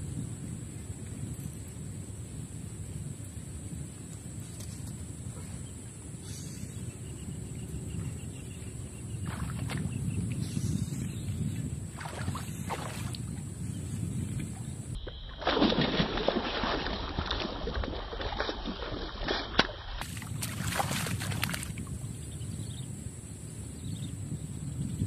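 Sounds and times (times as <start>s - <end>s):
wind rumble on microphone: 0.0s - 25.0s
fish splashing in water: 12.0s - 13.2s, 15.0s - 21.8s.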